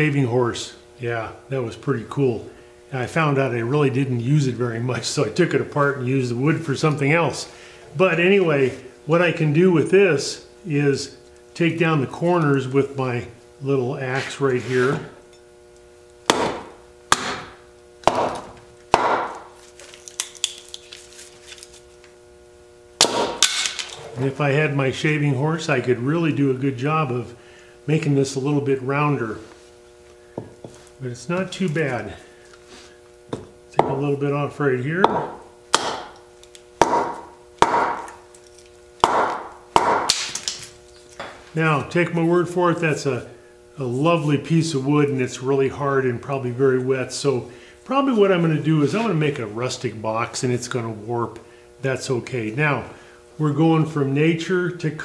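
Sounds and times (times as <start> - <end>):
hand axe chopping wood: 16.3 - 19.5, 23.0 - 23.8, 35.1 - 36.2, 36.8 - 38.2, 39.0 - 40.6.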